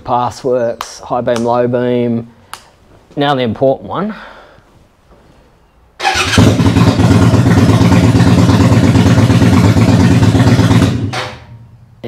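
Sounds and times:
electric starter cranking: 6.0 - 7.7
motorcycle engine running: 6.1 - 11.4.

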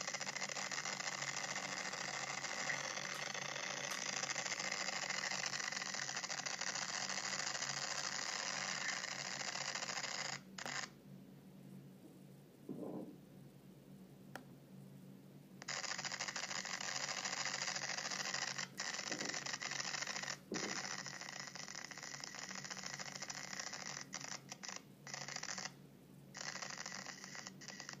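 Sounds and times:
microphone static hiss: 0.0 - 5.5.

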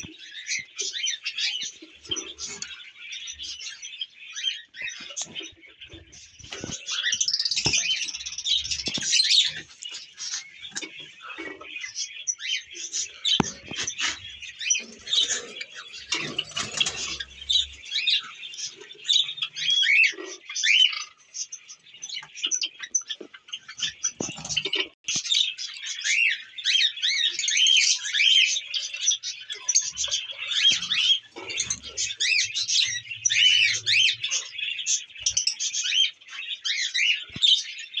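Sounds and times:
birds chirping and squawking: 0.0 - 38.0.

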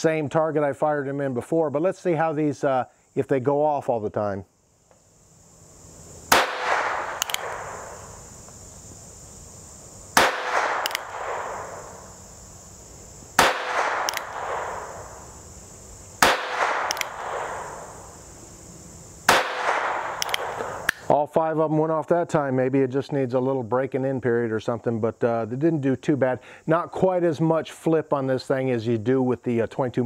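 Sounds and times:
revolver shots with echo: 6.3 - 7.8
faint snap: 7.1 - 7.6, 10.6 - 11.1, 14.0 - 14.3, 16.8 - 17.2, 20.1 - 21.1.

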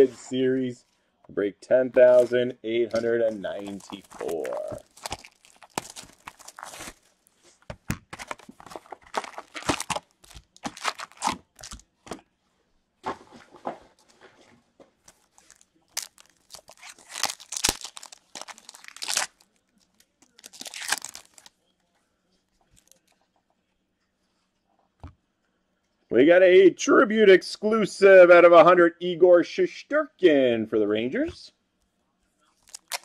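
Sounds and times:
wrappers crinkling and tearing: 2.9 - 7.4, 8.2 - 11.9, 15.0 - 21.6, 22.7 - 23.1, 32.6 - 33.0.

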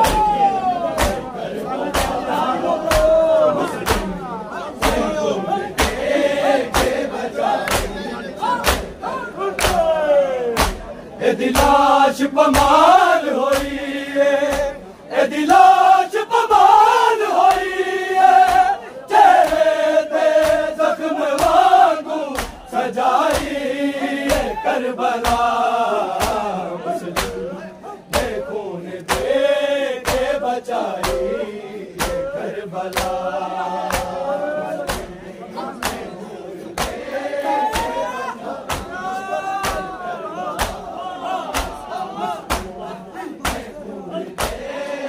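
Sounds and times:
men chanting a lament: 0.0 - 45.0
hands slapping chests: 1.0 - 1.3, 1.9 - 2.2, 2.8 - 3.2, 3.8 - 4.2, 4.8 - 5.1, 5.8 - 6.1, 6.7 - 8.0, 8.6 - 9.9, 10.5 - 10.9, 11.5 - 11.8, 13.5 - 13.8, 18.4 - 18.7, 19.4 - 19.7, 20.4 - 20.7, 21.3 - 21.6, 22.3 - 23.6, 25.2 - 25.6, 26.2 - 26.5, 27.1 - 27.4, 29.0 - 29.4, 30.0 - 30.4, 31.0 - 31.2, 32.0 - 32.3, 32.9 - 33.2, 33.8 - 34.2, 34.9 - 35.2, 35.8 - 36.1, 36.8 - 37.0, 37.7 - 38.0, 38.6 - 39.0, 39.6 - 40.0, 40.6 - 40.9, 41.5 - 42.8, 43.4 - 43.8, 44.4 - 44.7.

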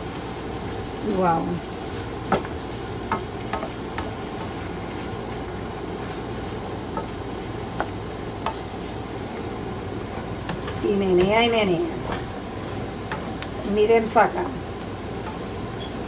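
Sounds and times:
meat sizzling in a skillet: 0.0 - 16.0
wooden spoon knocking on pan: 2.2 - 4.6, 6.9 - 7.2, 7.8 - 8.6.

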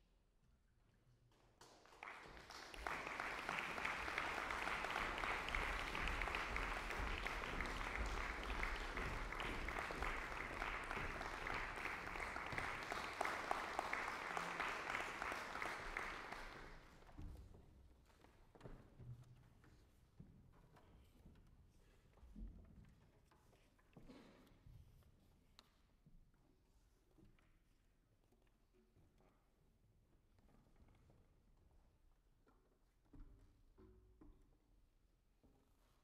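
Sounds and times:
audience applauding: 1.6 - 17.0.

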